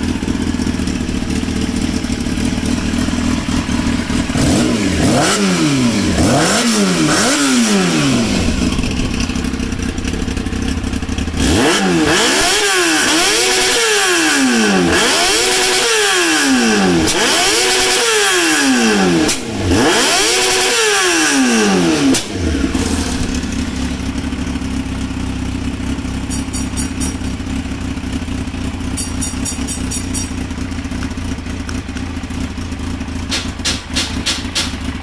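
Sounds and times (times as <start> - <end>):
motorcycle engine revving and idling: 0.0 - 35.0.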